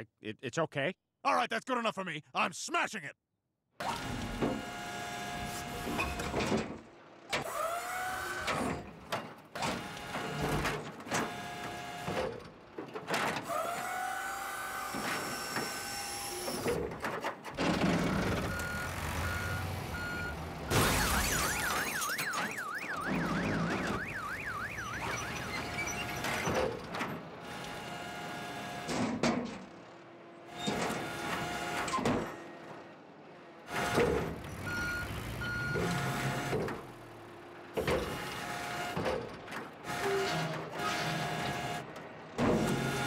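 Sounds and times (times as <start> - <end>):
beeping: 18.4 - 26.6
car alarm warbling: 18.4 - 26.7.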